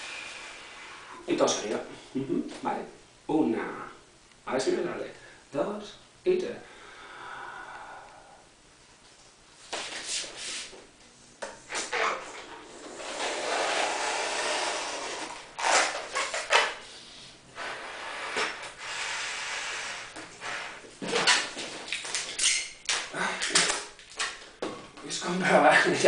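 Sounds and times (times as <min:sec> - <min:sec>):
person breathing in sharply: 0:06.6 - 0:08.4
balloon being blown up by mouth: 0:11.7 - 0:16.9, 0:17.6 - 0:21.6.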